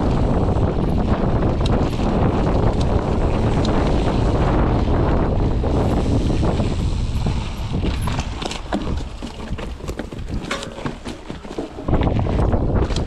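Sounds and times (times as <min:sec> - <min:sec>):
wind buffeting microphone: 0:00.0 - 0:13.0
tyres rumbling on dirt: 0:04.2 - 0:12.8
bike clicks and rattles: 0:07.9 - 0:13.0.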